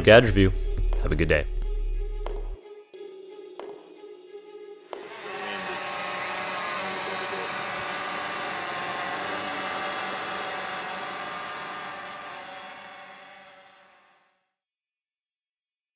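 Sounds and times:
quadcopter drone buzzing overhead: 5.0 - 14.1.

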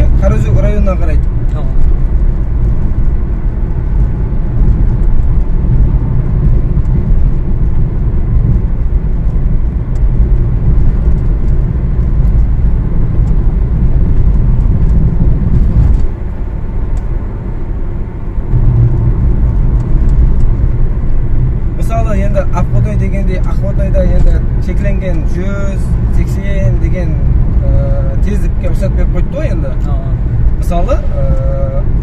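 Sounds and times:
car tyres and engine rumble: 0.0 - 32.0.

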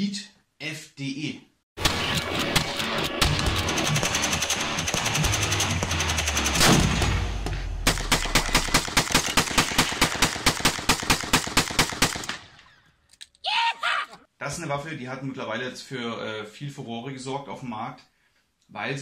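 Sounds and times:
rapid gunfire rattle: 1.8 - 12.6
rifle shots: 1.8 - 12.6.

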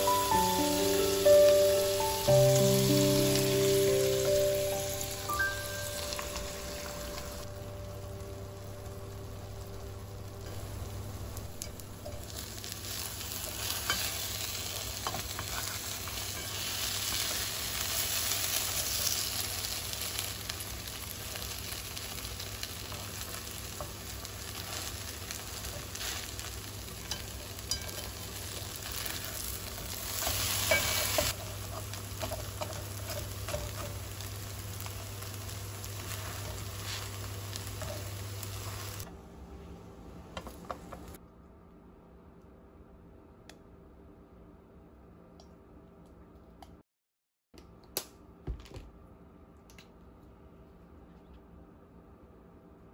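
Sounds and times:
batter sizzling in frying pan: 0.0 - 39.1
low hum: 1.5 - 12.7.

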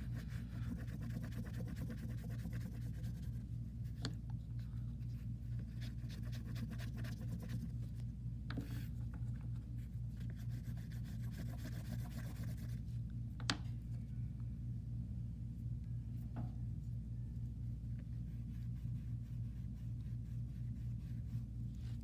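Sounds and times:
oil pastel scratching on paper: 0.0 - 4.0, 5.5 - 7.9, 10.1 - 12.8, 18.1 - 22.0
steady low hum: 0.0 - 22.0.

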